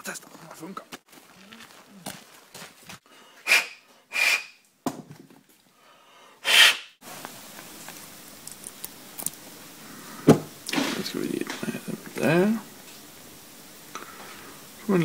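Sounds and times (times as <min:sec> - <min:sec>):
puffs of breath blown: 0:03.1 - 0:04.6.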